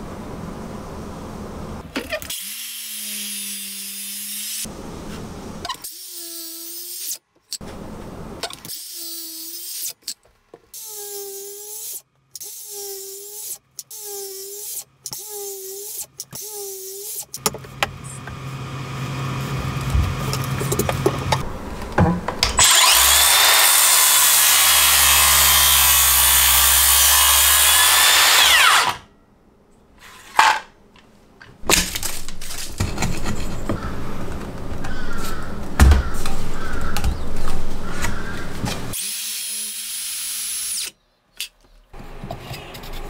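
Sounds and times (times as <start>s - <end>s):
knocks and scraping of wood: 19.7s - 22.8s, 30.0s - 39.0s
circular saw cutting wood: 22.6s - 29.1s, 38.3s - 41.0s.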